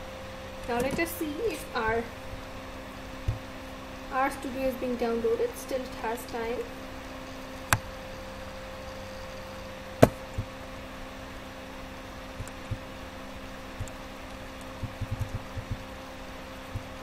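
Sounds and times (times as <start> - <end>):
electrical hum: 0.0 - 17.0
computer mouse clicking: 13.8 - 15.8.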